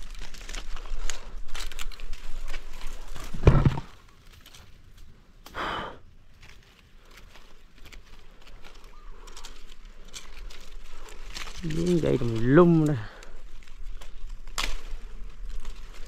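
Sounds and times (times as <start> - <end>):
branches and dry leaves rustling: 0.0 - 16.0
loud thud: 3.4 - 3.9
man breathing out heavily: 5.5 - 6.1.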